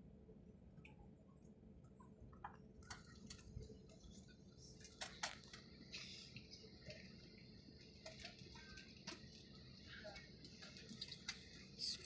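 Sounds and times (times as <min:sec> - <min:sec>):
faint low cabin hum: 0:00.0 - 0:12.0
light clicks and ticks: 0:01.8 - 0:07.1, 0:07.8 - 0:11.8.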